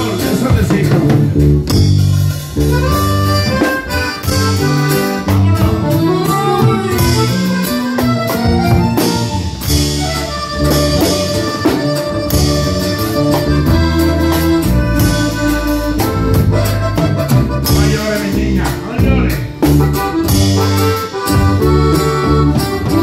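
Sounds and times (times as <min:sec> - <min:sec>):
accordion-led band music: 0:00.0 - 0:23.0
bass line: 0:00.0 - 0:23.0
steady drum beat: 0:00.0 - 0:23.0.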